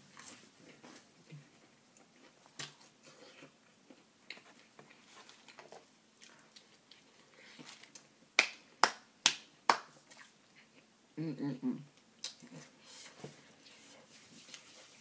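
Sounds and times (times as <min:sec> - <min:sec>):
hand claps: 0:08.4 - 0:10.0.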